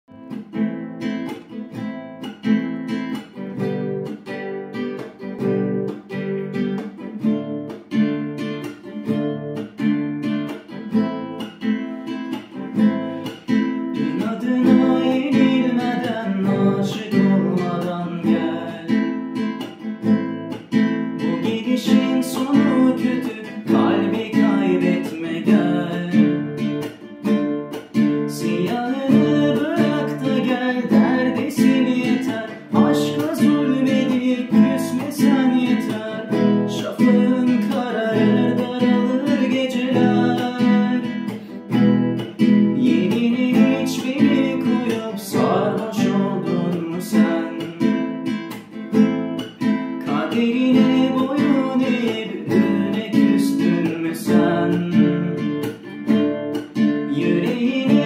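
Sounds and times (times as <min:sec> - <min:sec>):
acoustic guitar strumming: 0:00.1 - 0:58.0
man singing: 0:12.7 - 0:19.9, 0:21.1 - 0:27.3, 0:28.1 - 0:48.5, 0:49.7 - 0:58.0.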